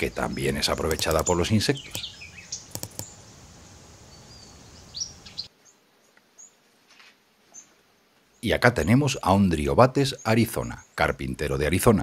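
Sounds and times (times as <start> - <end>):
steady background hiss: 0.0 - 12.0
sharp taps: 0.8 - 1.2, 2.7 - 3.1
short high bird chirps: 1.0 - 3.3.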